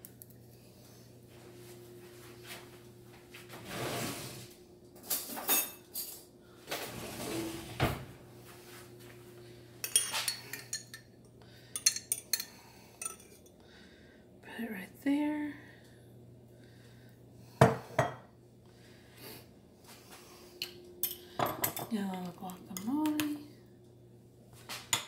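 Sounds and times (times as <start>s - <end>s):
faint steady hum: 0.0s - 25.0s
metal spoon clinking on glass: 9.8s - 11.1s, 11.8s - 13.5s.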